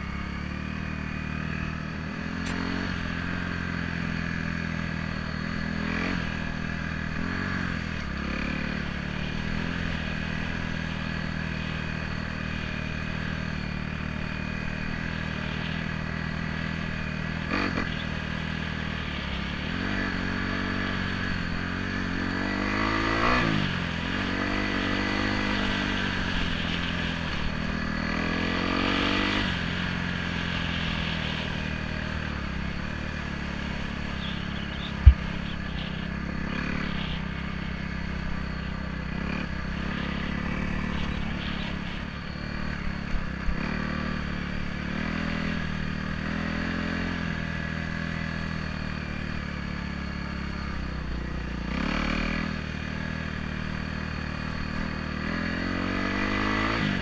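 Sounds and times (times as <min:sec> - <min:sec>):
motorbike engine revving: 0:00.0 - 0:57.0
sharp low thump: 0:35.0 - 0:35.4.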